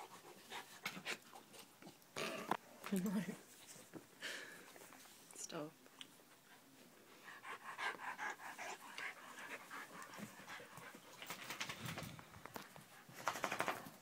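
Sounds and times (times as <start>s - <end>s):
dog panting: 0.0s - 2.0s, 6.3s - 11.8s.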